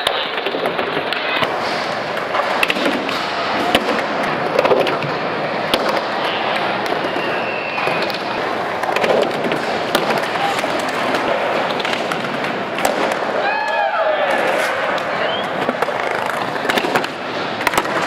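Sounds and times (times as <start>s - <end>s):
skateboard clacks and knocks: 0.0s - 18.0s
skateboard wheels rolling on concrete: 0.0s - 18.0s.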